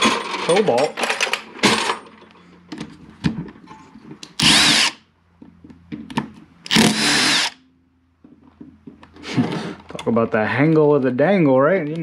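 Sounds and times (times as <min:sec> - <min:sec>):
cordless power driver bursts: 0:04.4 - 0:05.0, 0:06.7 - 0:07.6.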